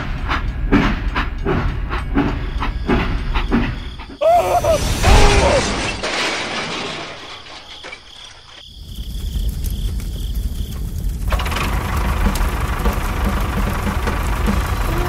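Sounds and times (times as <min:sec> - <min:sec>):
toy train crashing: 0:04.6 - 0:08.6.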